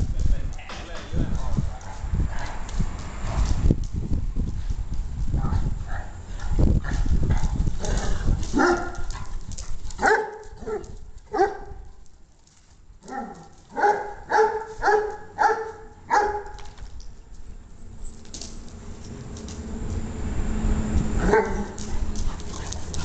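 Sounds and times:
dogs scuffling: 0.0 - 20.1, 20.9 - 23.0
dogs barking: 1.4 - 2.7, 5.4 - 7.9, 8.5 - 11.8, 13.0 - 16.6, 21.2 - 23.0.

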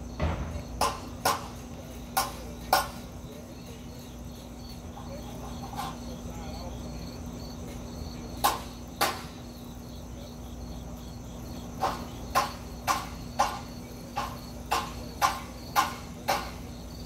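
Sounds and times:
insects chirping: 0.0 - 17.0
sharp short knocks: 0.2 - 3.1, 8.4 - 9.4, 11.8 - 16.7.

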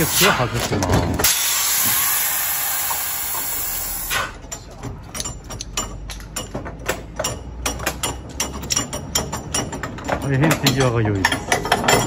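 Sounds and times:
compressed air hissing from hose: 0.0 - 0.4, 1.2 - 4.3
metallic clicks from coupling gear: 4.4 - 12.0.

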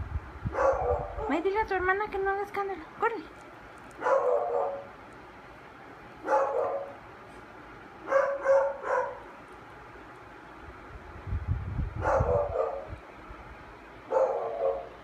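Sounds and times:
dog giving whiny barks: 0.5 - 1.4, 4.0 - 4.9, 6.2 - 7.0, 8.0 - 9.3.

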